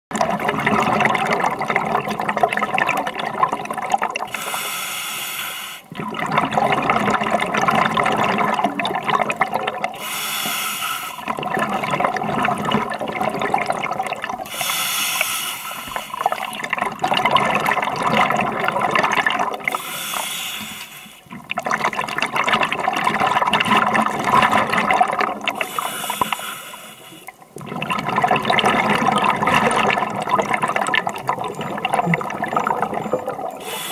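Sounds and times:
bubbling exhale underwater: 0:00.1 - 0:04.6, 0:05.9 - 0:10.2, 0:11.2 - 0:20.1, 0:21.2 - 0:33.9
diver inhaling through regulator: 0:04.3 - 0:05.9, 0:10.0 - 0:11.3, 0:14.5 - 0:16.4, 0:19.7 - 0:21.3, 0:25.5 - 0:27.4, 0:33.6 - 0:33.9.

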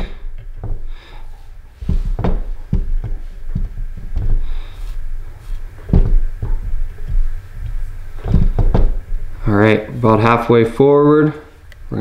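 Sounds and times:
dull knocks: 0:00.0 - 0:01.2, 0:01.8 - 0:09.4
light rubbing: 0:00.0 - 0:11.8.

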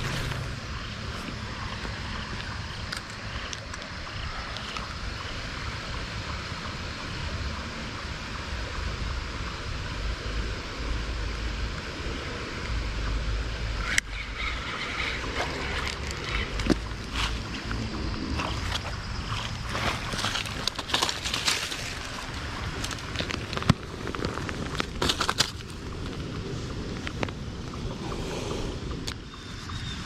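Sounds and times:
creek water running: 0:00.0 - 0:29.2
wind rumble on microphone: 0:00.0 - 0:30.0.

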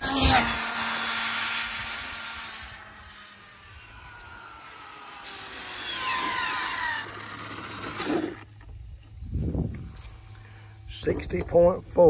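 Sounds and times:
toy car electric motor whining: 0:00.0 - 0:08.6.

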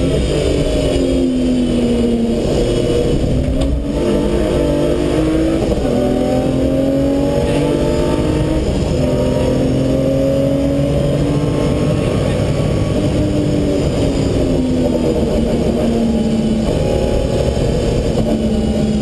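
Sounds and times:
car engine accelerating hard: 0:00.0 - 0:19.0.

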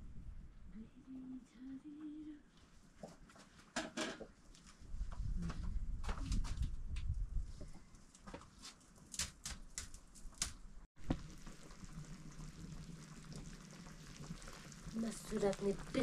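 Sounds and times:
pot boiling with bubbling hiss: 0:11.0 - 0:16.0.

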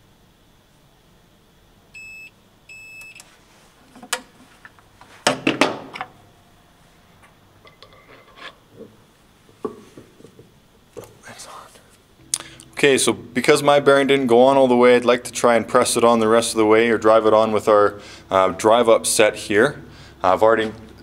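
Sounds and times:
heater beeping: 0:01.9 - 0:03.5.

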